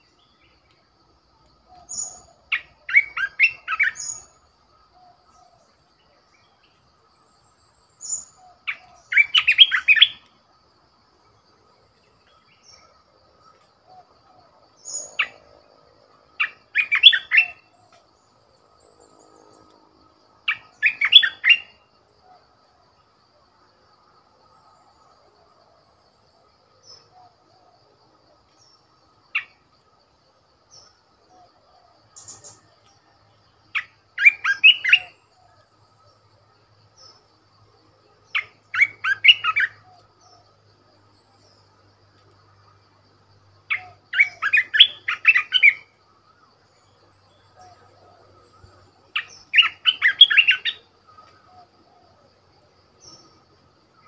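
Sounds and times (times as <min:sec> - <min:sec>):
bulbul singing: 0:32.2 - 0:32.6.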